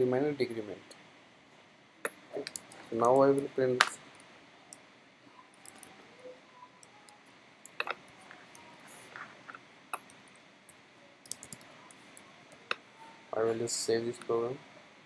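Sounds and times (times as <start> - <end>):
keyboard typing: 11.2 - 12.7.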